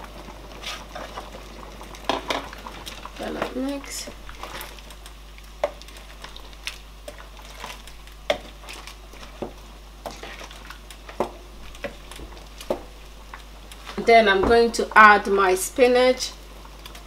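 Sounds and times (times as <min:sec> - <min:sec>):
wooden spoon scraping pot: 0:05.6 - 0:12.9.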